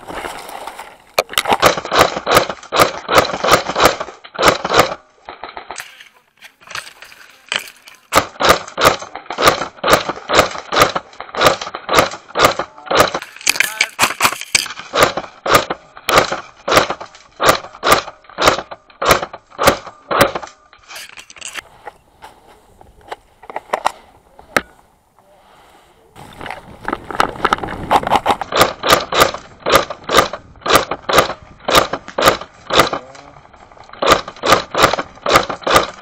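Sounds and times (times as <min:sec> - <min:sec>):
airsoft rifle shots: 0:01.5 - 0:05.1, 0:08.1 - 0:20.6, 0:28.0 - 0:33.1, 0:34.0 - 0:36.0.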